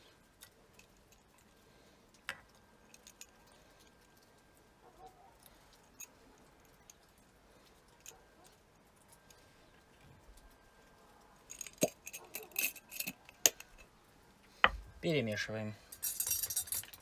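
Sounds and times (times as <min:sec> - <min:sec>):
glass jars clinking: 0:16.0 - 0:17.0.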